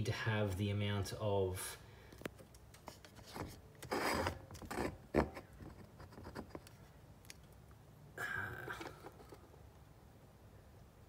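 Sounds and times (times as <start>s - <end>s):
handling rubbing and scraping: 2.7s - 7.0s.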